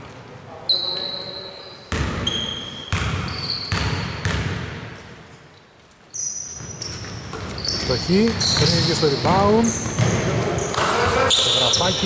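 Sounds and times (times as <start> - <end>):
sneaker squeaks: 0.6 - 4.5, 5.5 - 12.0
basketball bouncing on court: 1.9 - 5.1, 6.5 - 12.0.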